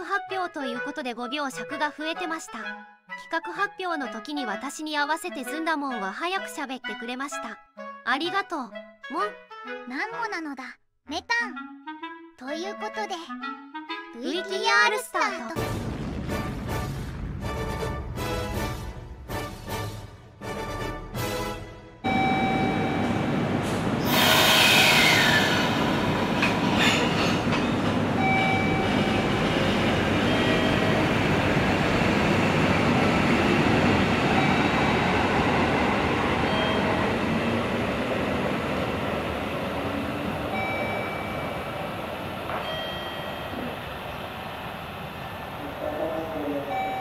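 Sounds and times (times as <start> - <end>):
train wheels rumbling: 22.1 - 47.0.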